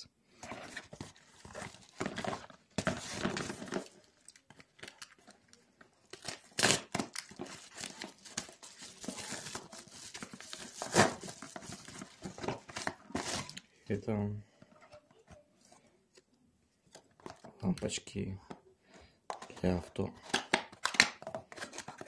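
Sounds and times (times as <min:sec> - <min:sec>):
paper tearing rips: 0:06.5 - 0:07.1.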